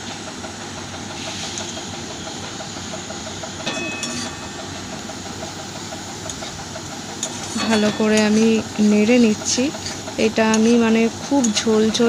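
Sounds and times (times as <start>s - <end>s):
metal spoon clinking on pan: 3.7s - 4.5s.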